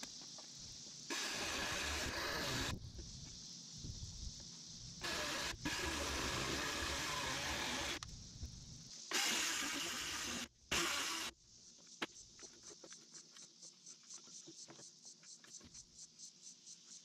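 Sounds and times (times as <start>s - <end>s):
electric chainsaw cutting log: 1.1s - 2.8s, 5.0s - 8.0s, 9.1s - 11.3s.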